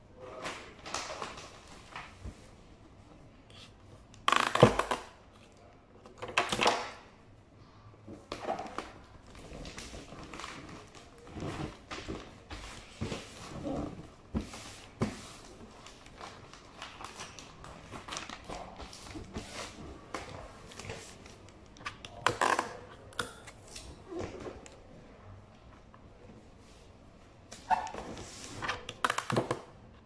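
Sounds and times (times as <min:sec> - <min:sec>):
wrapping paper rustling and crinkling: 0:08.7 - 0:21.5.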